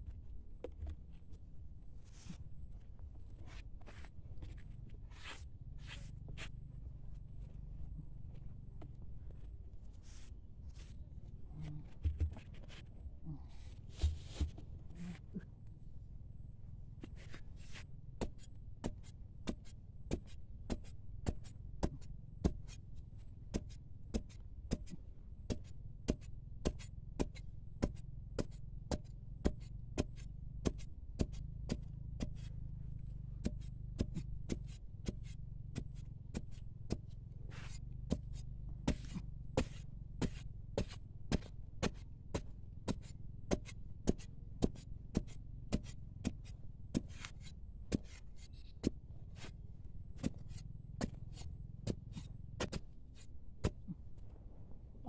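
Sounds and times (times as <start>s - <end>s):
steady low rumble: 0.0s - 16.9s.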